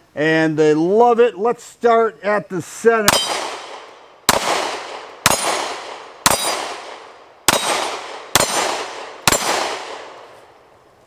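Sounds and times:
pistol shots: 3.1 - 10.4.

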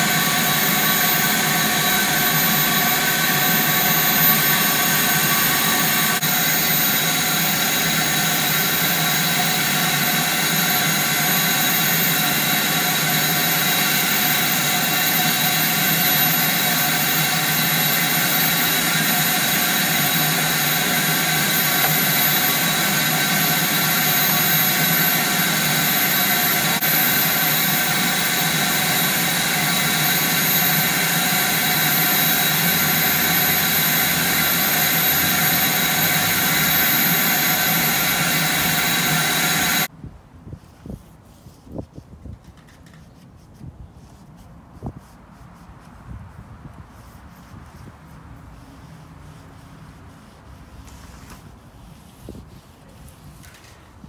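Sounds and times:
shop vacuum running: 0.0 - 39.9.

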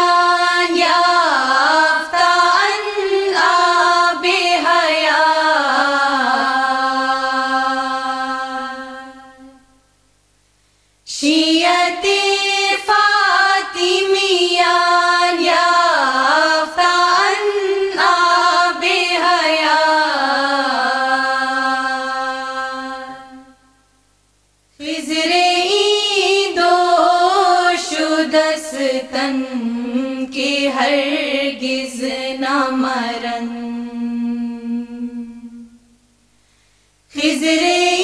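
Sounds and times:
devotional singing with held notes: 0.0 - 10.0, 10.8 - 24.0, 24.7 - 38.0.

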